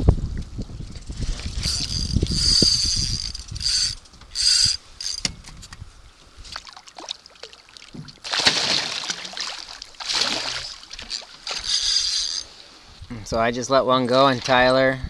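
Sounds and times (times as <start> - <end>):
fishing reel buzz: 0.9 - 5.3, 10.1 - 12.6
fish thrashing and splashing: 6.5 - 12.8.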